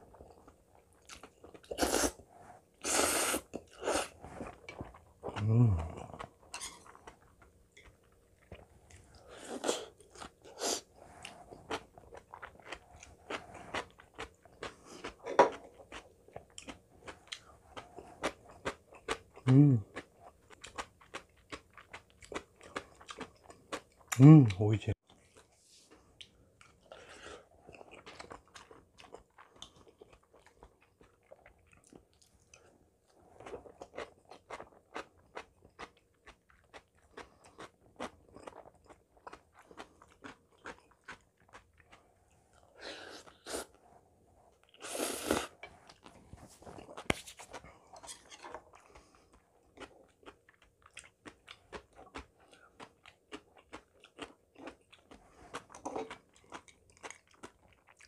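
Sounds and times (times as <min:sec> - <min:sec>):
person chewing crunchy food: 0:00.0 - 0:24.2, 0:25.0 - 0:43.8, 0:44.5 - 0:58.0.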